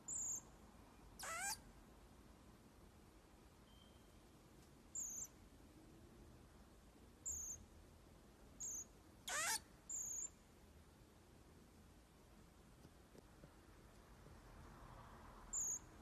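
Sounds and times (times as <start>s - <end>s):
marmoset chirping: 0.0s - 0.5s, 1.2s - 1.6s, 4.9s - 5.4s, 7.2s - 7.7s, 8.6s - 10.4s, 15.5s - 16.0s
marmoset wavering call: 0.1s - 0.4s, 1.2s - 1.6s, 5.0s - 5.4s, 7.2s - 7.6s, 8.6s - 10.4s, 15.5s - 15.9s.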